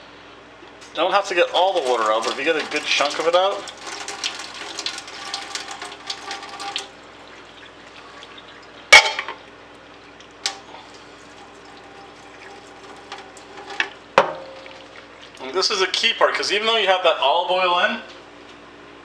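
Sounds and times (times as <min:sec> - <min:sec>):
water pouring into metal sink: 0:00.8 - 0:15.8.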